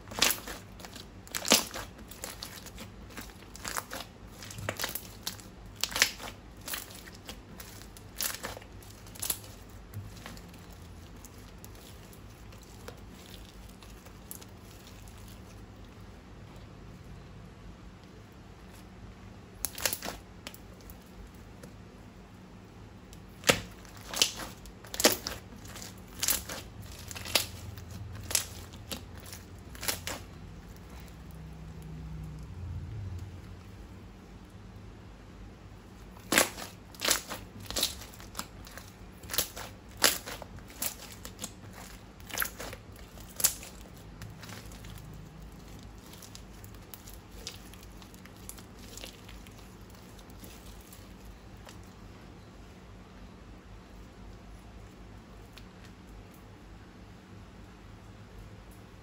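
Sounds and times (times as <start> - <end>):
sharp crackling crunches: 0.0 - 15.8, 19.6 - 21.1, 23.2 - 31.8, 36.0 - 52.0.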